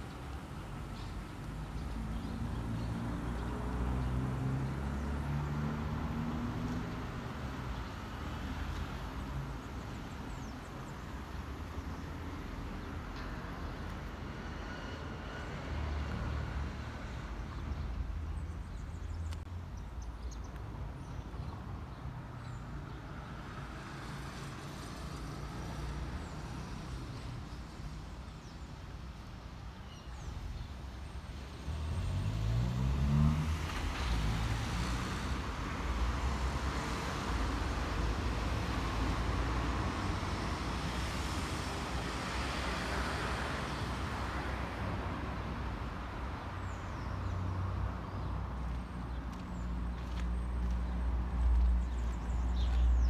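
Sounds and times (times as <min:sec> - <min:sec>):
rumble of passing cars: 0:00.0 - 0:53.0
vehicle engine accelerating past: 0:02.4 - 0:07.0, 0:31.6 - 0:35.5.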